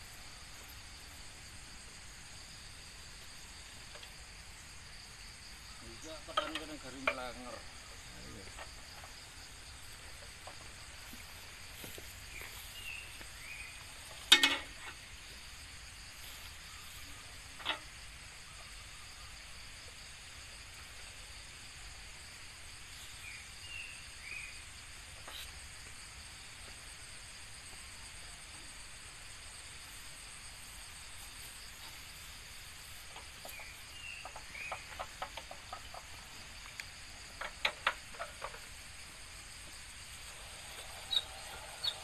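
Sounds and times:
insect hiss: 0.0 - 42.0
metallic clank: 14.1 - 15.0.

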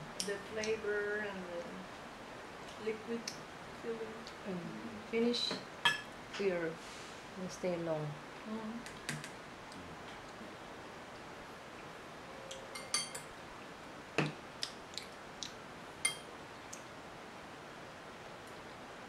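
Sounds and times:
cutlery clinking on ceramic dishes: 5.8 - 6.1, 12.6 - 13.3.

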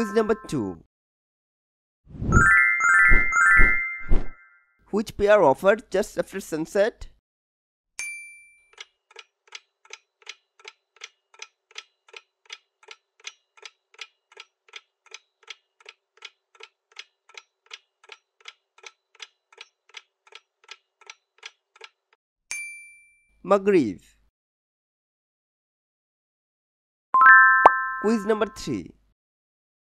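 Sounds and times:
bell-like ding: 8.0 - 8.7, 22.5 - 23.4, 27.2 - 28.4
clock ticking: 8.7 - 22.0.

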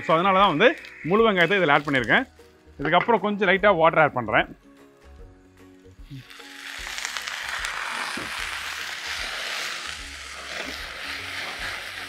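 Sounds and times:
water pouring into pan: 0.0 - 2.2, 6.2 - 12.0
water sizzling in hot oil: 0.0 - 2.9, 5.8 - 12.0.

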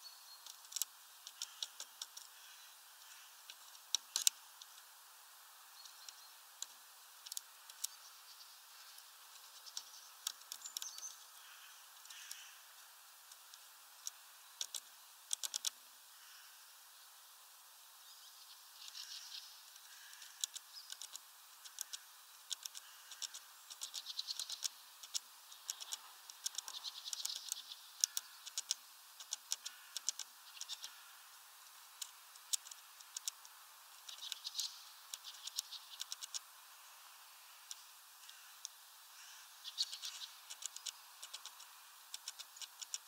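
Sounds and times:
bird pecking taps and clicks: 0.4 - 2.3, 13.4 - 15.8, 20.1 - 31.0, 40.0 - 43.0.

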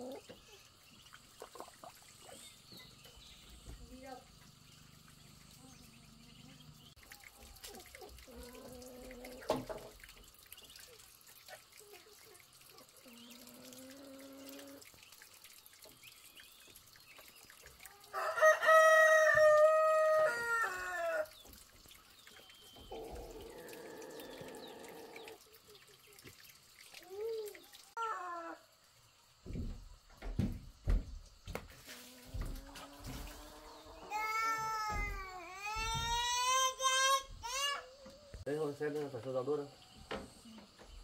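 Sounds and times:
rooster crowing: 18.1 - 21.3
knock: 29.5 - 31.7.

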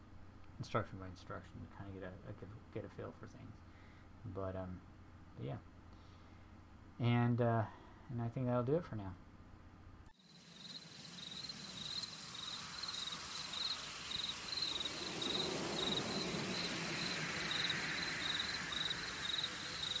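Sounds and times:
night ambience hiss: 0.0 - 20.0
crickets chirping: 10.2 - 20.0.

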